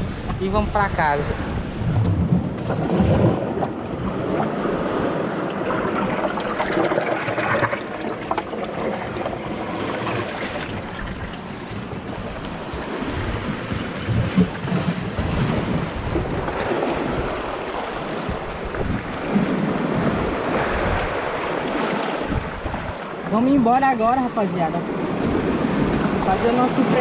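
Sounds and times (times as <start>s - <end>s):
surf breaking on rocks: 24.5s - 27.0s.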